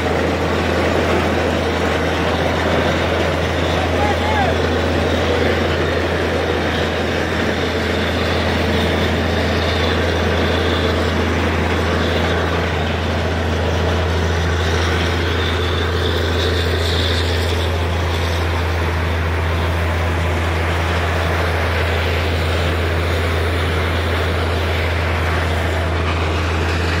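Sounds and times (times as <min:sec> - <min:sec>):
drilling rig engine droning: 0:00.0 - 0:27.0.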